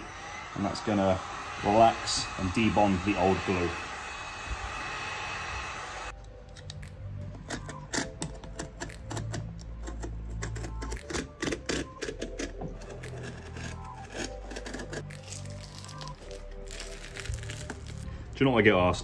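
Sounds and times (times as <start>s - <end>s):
background music: 0.0s - 19.0s.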